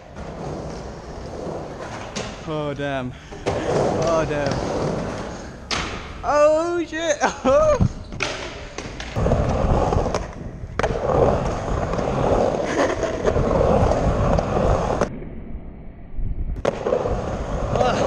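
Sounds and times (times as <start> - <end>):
skateboard wheels rumbling: 0.0 - 5.7, 8.6 - 15.1, 16.6 - 18.0.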